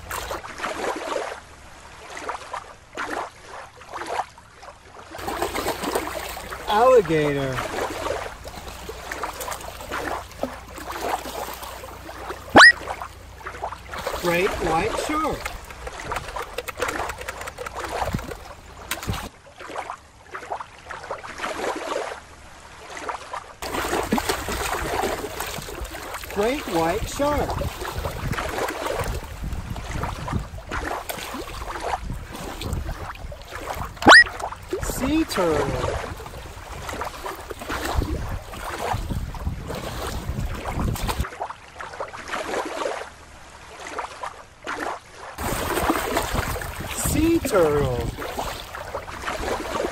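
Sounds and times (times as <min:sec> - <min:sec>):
water lapping over rocks: 0:00.0 - 0:49.9
wind buffeting microphone: 0:14.5 - 0:19.3, 0:26.8 - 0:35.0, 0:35.6 - 0:41.2.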